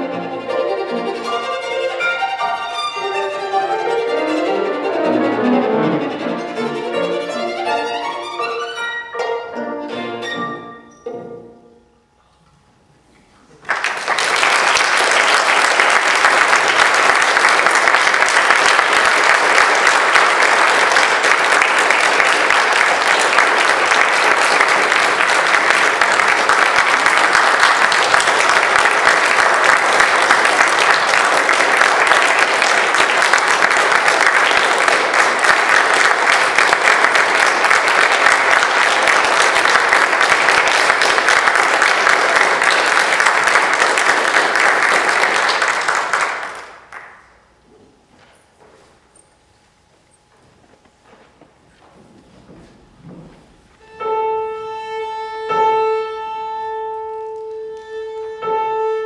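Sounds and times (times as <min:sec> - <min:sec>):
audience applauding: 0:13.4 - 0:47.6.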